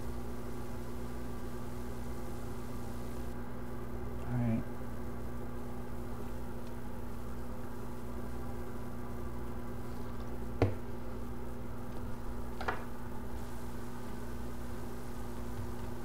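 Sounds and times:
steady electrical hum: 0:00.0 - 0:16.0.

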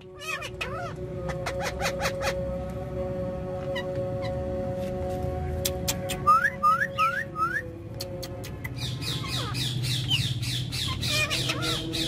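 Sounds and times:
parakeets squawking: 0:00.0 - 0:02.6, 0:03.7 - 0:04.4, 0:08.7 - 0:12.0
parakeets whistled calls: 0:00.0 - 0:02.6, 0:03.7 - 0:04.4, 0:06.1 - 0:07.6, 0:08.6 - 0:12.0
background music held notes: 0:00.0 - 0:12.0.

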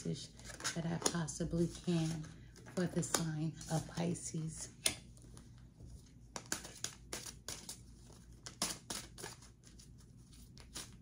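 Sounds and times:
cards being shuffled: 0:06.3 - 0:11.0.

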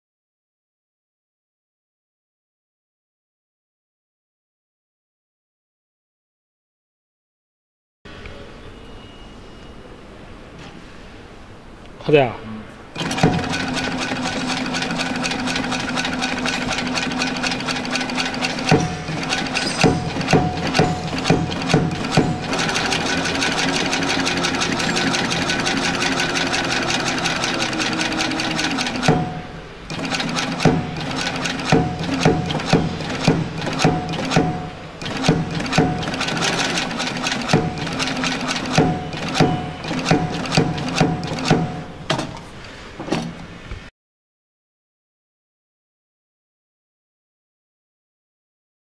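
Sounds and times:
needle mechanism ticking: 0:13.0 - 0:41.8
sewing machine motor hum: 0:13.0 - 0:42.0.

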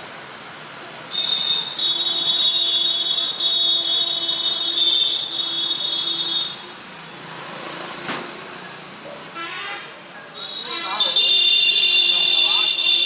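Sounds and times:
street traffic noise: 0:00.0 - 0:13.0
vehicle horn sounding: 0:01.1 - 0:06.7, 0:09.4 - 0:13.0.

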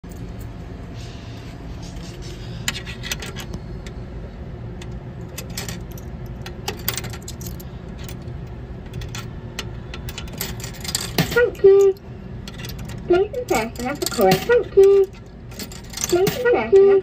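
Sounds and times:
coins dropping into coin mechanism: 0:10.2 - 0:12.0, 0:13.5 - 0:16.6
coins clinking: 0:12.6 - 0:16.9.

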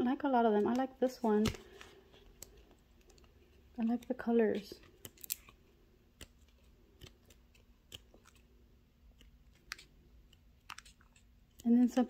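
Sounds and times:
paper pages turning: 0:03.9 - 0:08.5, 0:09.1 - 0:11.6.

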